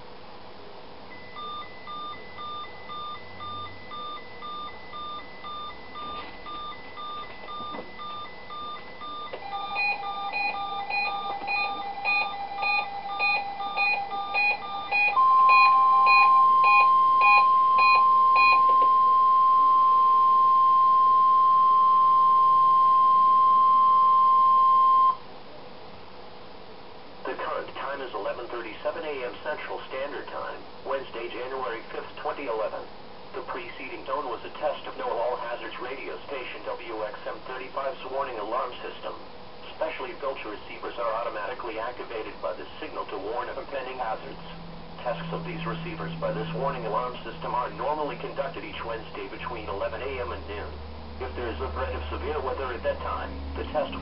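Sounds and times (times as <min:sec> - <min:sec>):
loud steady warning alarm tone: 0:01.1 - 0:25.2, 0:43.5 - 0:50.7
quiet alert beeping: 0:01.1 - 0:25.2
loud weather radio beeping: 0:01.2 - 0:25.2, 0:43.8 - 0:50.3.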